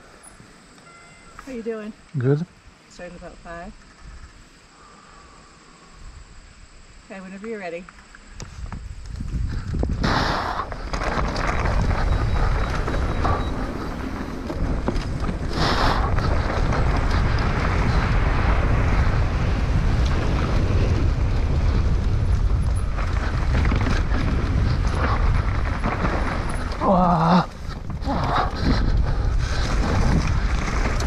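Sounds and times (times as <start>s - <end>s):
low rumble from bike ride: 0.0s - 31.0s
wind rushing over microphone: 8.3s - 31.0s.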